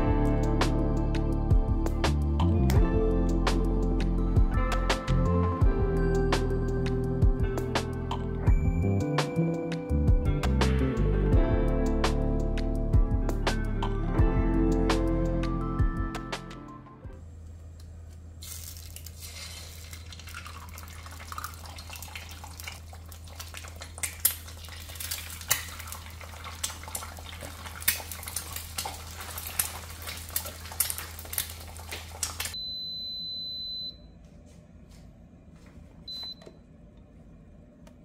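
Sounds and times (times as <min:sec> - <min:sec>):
low steady hum: 0:17.0 - 0:38.0
eggs sizzling in hot oil: 0:18.4 - 0:32.6
waffle maker electronic beep: 0:32.6 - 0:34.0.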